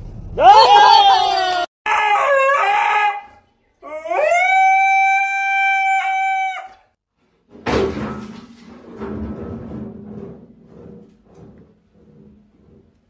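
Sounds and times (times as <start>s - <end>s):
dog howling: 0.4s - 6.8s
loud thump: 7.5s - 10.5s.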